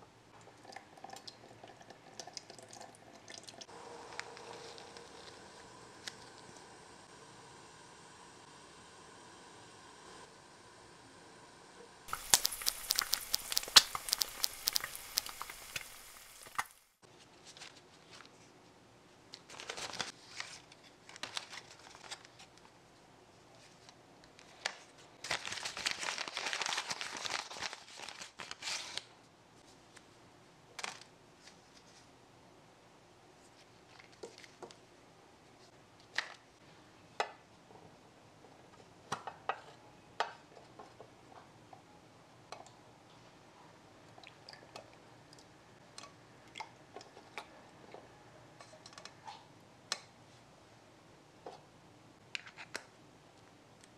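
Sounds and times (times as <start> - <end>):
plastic packaging clicking: 12.1 - 16.8
paper bag rustling: 25.3 - 29.0.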